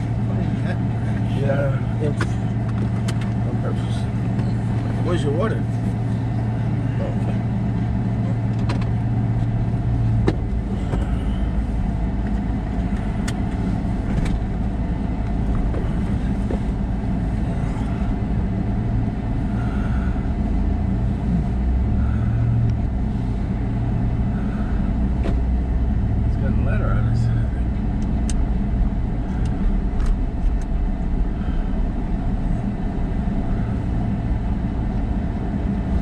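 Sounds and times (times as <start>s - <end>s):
car engine hum: 0.0s - 36.0s.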